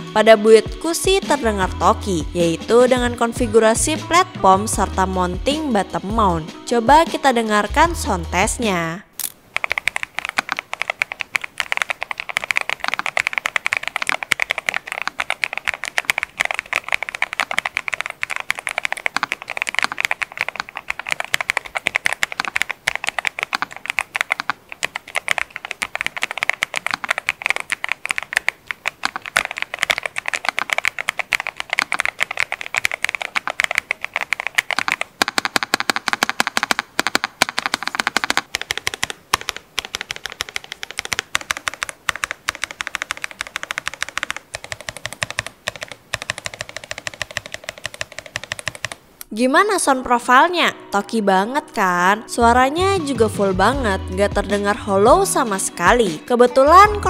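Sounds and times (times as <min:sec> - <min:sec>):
fast typing on mechanical keyboard: 0:09.5 - 0:49.0.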